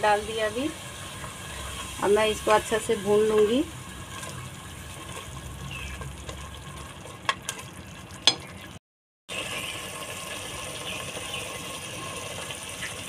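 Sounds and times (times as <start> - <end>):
paste sizzling in oil: 0.0 - 7.8
spatula stirring: 3.3 - 8.7.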